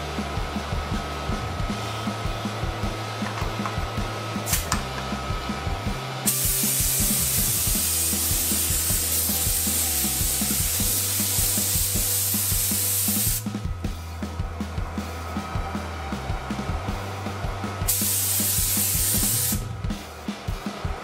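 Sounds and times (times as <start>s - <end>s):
background music with beat: 0.0s - 21.0s
spray gun hissing: 6.3s - 13.5s, 17.9s - 19.6s.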